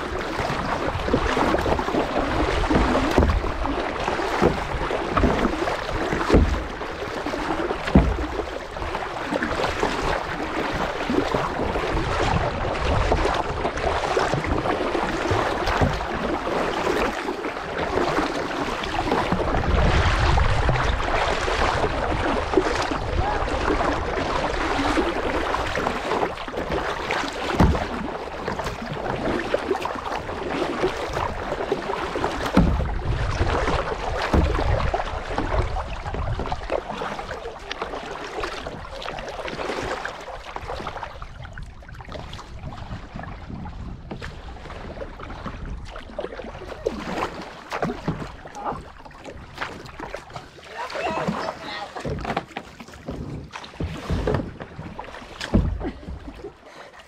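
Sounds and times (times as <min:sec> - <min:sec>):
water rushing and splashing: 0:00.0 - 0:57.0
wind on microphone: 0:18.9 - 0:26.0, 0:32.5 - 0:37.1, 0:41.0 - 0:47.3.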